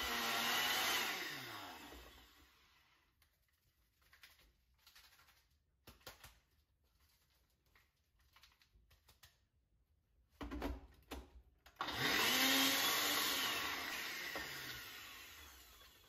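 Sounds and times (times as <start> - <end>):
blender motor running: 0.0 - 3.0, 11.8 - 16.0.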